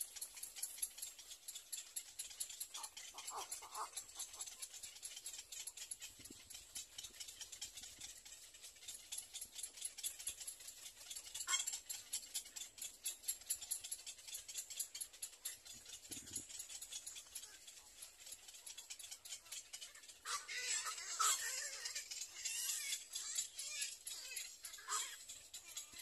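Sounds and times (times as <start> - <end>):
egret chicks calling: 2.8 - 4.4, 20.2 - 25.3.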